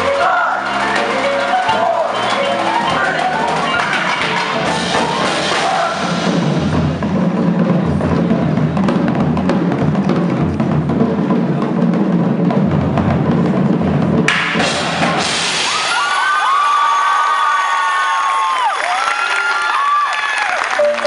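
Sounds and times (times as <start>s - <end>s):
mallet keyboards: 0.0s - 13.8s
snare drums: 0.0s - 16.6s
bass drums: 2.6s - 16.5s.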